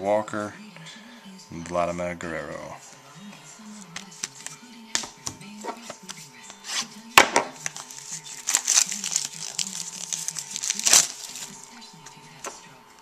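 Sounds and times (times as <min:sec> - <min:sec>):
faint background music: 0:00.0 - 0:13.0
plastic wrapper crinkling: 0:07.6 - 0:11.8.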